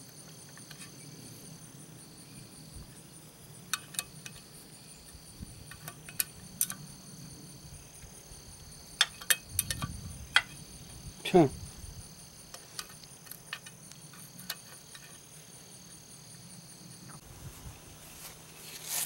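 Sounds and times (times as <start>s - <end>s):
crickets chirring: 0.0s - 19.0s
wrench clicking on bolts: 3.7s - 4.5s, 5.6s - 6.9s, 9.0s - 10.5s, 12.5s - 15.2s.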